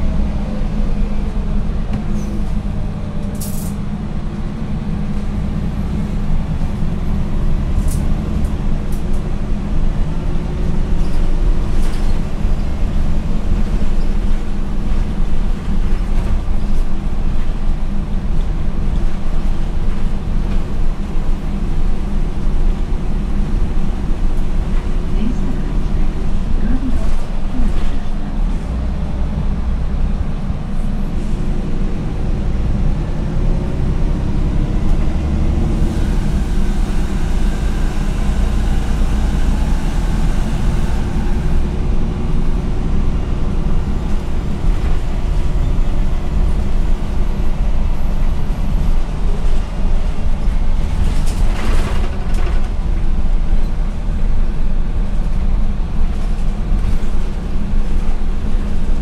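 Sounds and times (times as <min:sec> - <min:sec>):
bus engine low rumble: 0:00.0 - 0:59.0.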